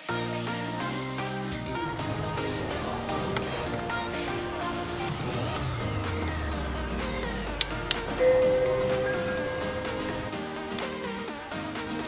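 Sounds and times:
background music: 0.0 - 12.0
sweeping tone: 2.0 - 10.4.

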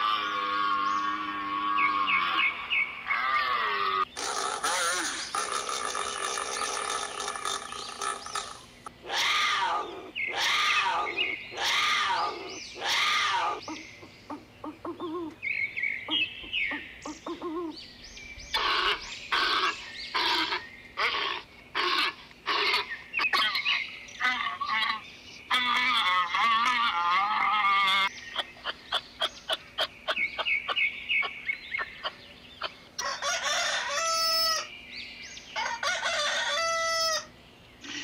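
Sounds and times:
harsh rasping animal call: 0.0 - 13.8, 18.6 - 28.1
animal calls: 0.0 - 15.4, 16.1 - 17.8, 18.5 - 34.7.

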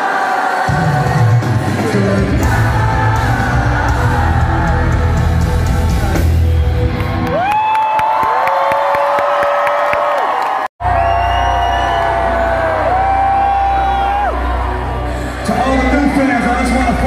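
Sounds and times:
live concert music with bass beat: 0.0 - 7.8, 10.8 - 17.0
crowd whooping: 4.0 - 16.8.

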